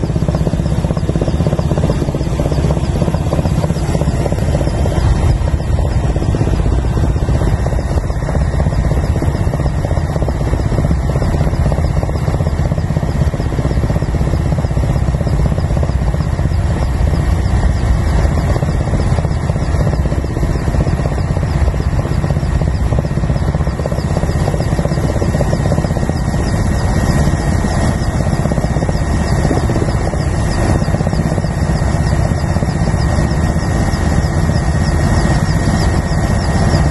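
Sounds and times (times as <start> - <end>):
propeller plane engine drone: 0.0 - 36.9.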